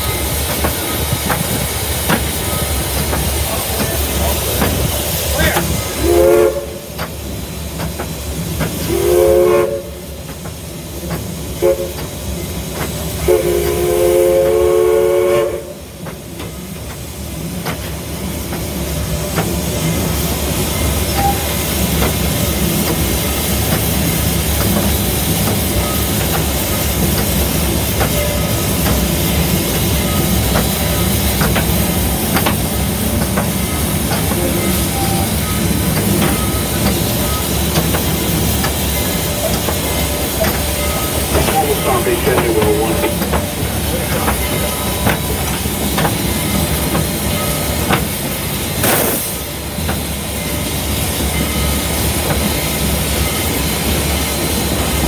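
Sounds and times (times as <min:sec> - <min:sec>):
steam locomotive running over rails: 0:00.0 - 0:55.0
steam whistle blasts: 0:06.0 - 0:06.9, 0:08.8 - 0:10.0, 0:11.6 - 0:12.1, 0:13.2 - 0:15.8.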